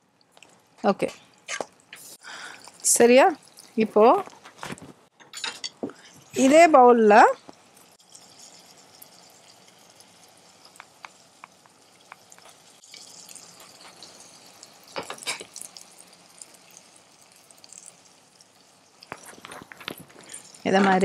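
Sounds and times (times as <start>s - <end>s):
utensils clattering: 4.0s - 6.8s, 19.1s - 21.0s.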